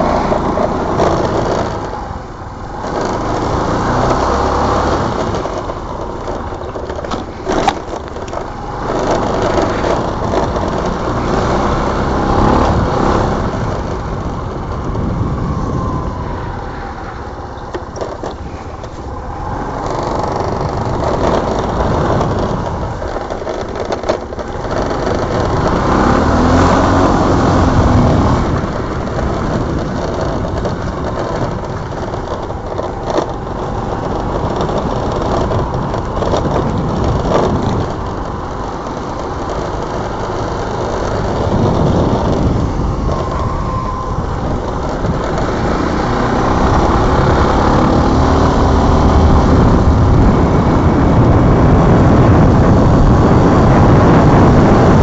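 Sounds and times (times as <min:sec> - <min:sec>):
scooter engine running: 0:00.0 - 0:55.0
wind rush on microphone: 0:00.0 - 0:55.0.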